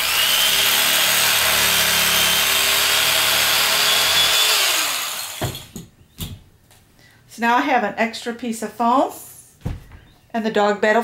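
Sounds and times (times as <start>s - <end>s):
electric knife cutting foam: 0.0s - 5.7s.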